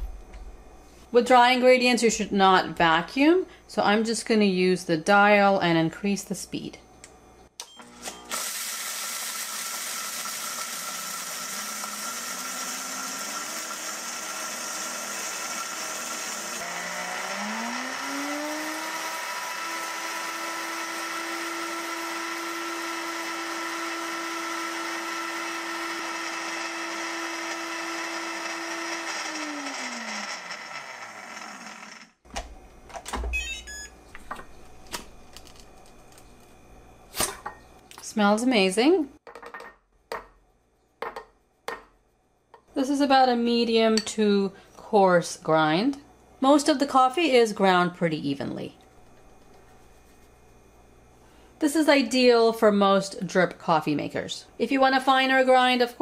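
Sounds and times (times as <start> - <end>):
blender motor whining: 7.8 - 32.2
coffee beans being ground: 21.7 - 32.0, 49.1 - 50.6.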